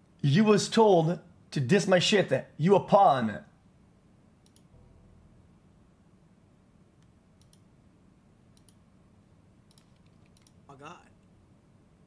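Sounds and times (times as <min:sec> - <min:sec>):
computer mouse clicks: 0:04.4 - 0:04.7, 0:07.0 - 0:07.7, 0:08.6 - 0:08.8, 0:09.7 - 0:10.6.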